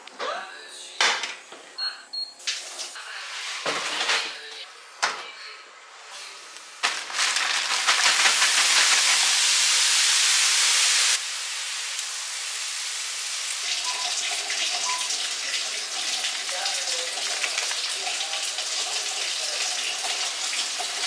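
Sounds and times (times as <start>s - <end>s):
vegetables sizzling in a frying pan: 6.1s - 21.0s
vegetables poured into a pan: 6.7s - 11.0s.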